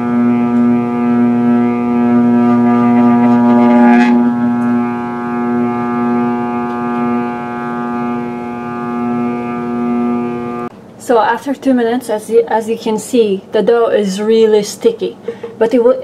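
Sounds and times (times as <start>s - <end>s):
food processor motor kneading dough: 0.0s - 10.7s.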